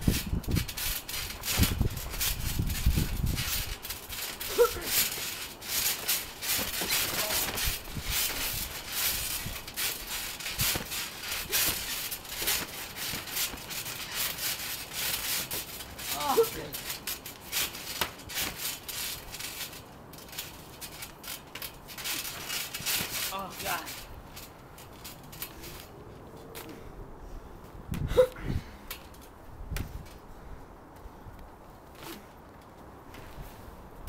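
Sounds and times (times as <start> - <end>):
short high vocal cry: 4.5 - 5.0.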